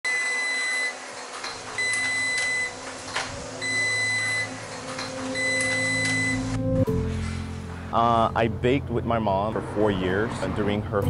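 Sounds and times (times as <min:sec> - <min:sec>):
electronic alarm beeping: 0:00.1 - 0:01.0, 0:01.8 - 0:02.9, 0:03.6 - 0:06.6.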